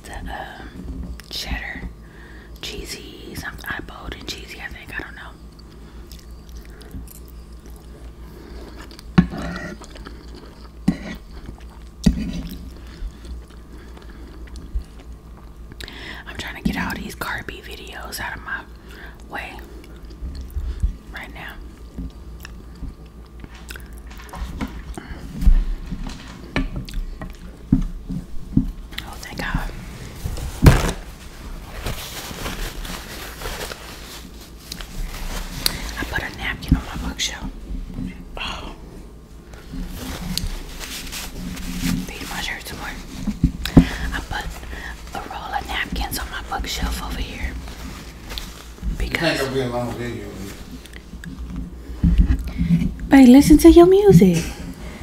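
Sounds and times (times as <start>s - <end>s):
chewing soft food: 5.4s - 15.9s, 18.8s - 25.1s.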